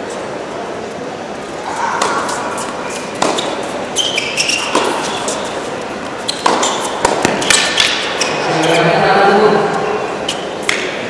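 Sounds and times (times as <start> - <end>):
tennis ball hits and bounces: 2.0 - 8.4, 10.6 - 11.0
shoe squeaks on court: 2.0 - 8.9.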